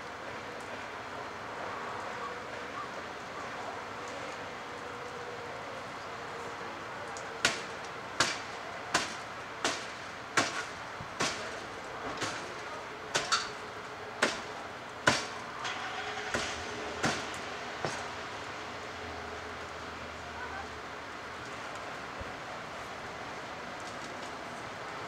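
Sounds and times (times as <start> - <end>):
hand tool chopping into wood: 9.0 - 11.4.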